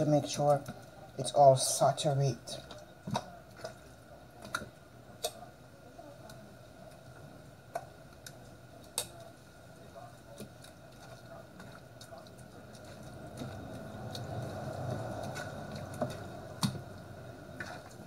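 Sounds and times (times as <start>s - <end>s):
wet squishing of marinade: 0.0s - 5.6s, 6.2s - 18.0s.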